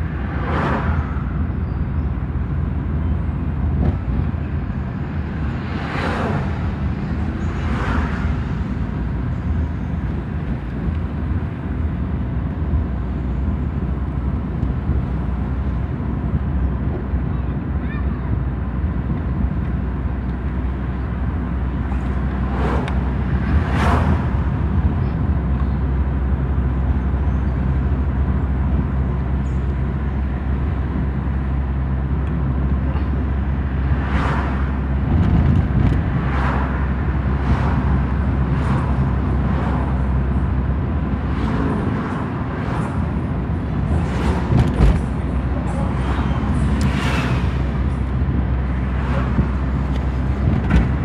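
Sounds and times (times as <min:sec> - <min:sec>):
engine and road rumble: 0:00.0 - 0:51.0.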